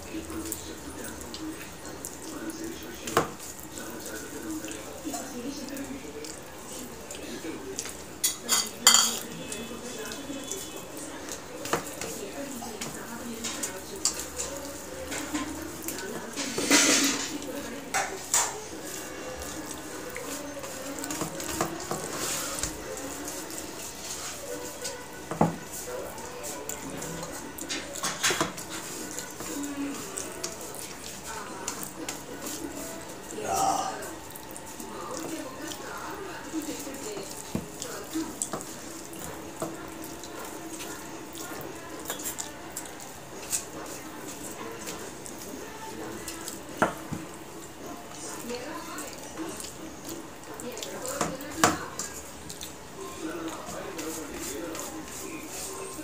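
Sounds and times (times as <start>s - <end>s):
wet squelching of food by hand: 0.0s - 56.0s
steel bowl clinking on plate: 8.2s - 9.3s, 16.4s - 17.4s.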